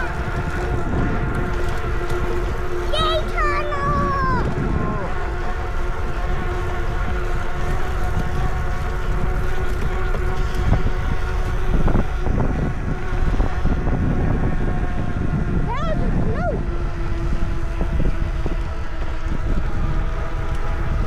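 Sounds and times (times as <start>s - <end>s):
electric hub motor whine: 0.0s - 21.0s
wind rumbling on microphone: 0.0s - 21.0s.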